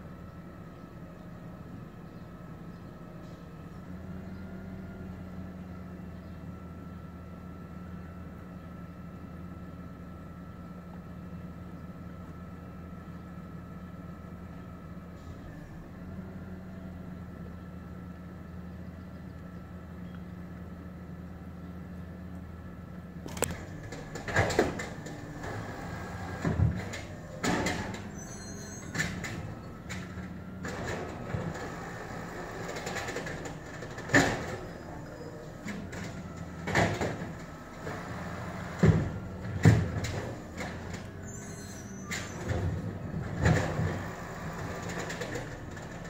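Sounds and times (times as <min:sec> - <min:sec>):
garbage truck diesel engine: 0:00.0 - 0:46.0
trash carts clanking and banging: 0:23.3 - 0:46.0.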